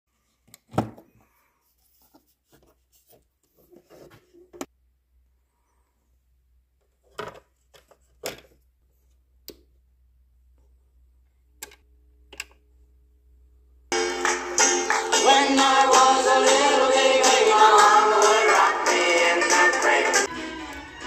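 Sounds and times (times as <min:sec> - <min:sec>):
music from a record: 0:13.9 - 0:21.0.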